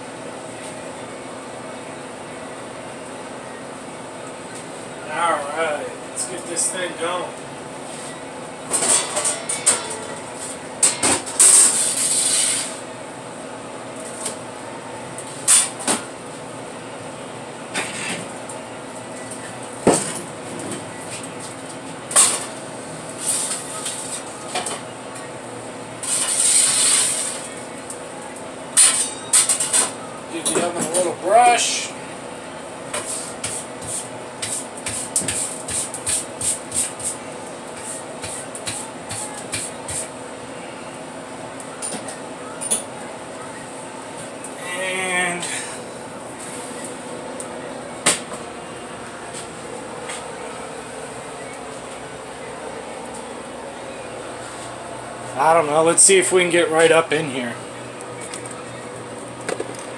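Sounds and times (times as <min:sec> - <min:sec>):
steady hum: 0:00.0 - 0:59.9
metal peel scraping and clanking: 0:08.7 - 0:12.8
brush scrubbing oven floor: 0:33.0 - 0:40.1.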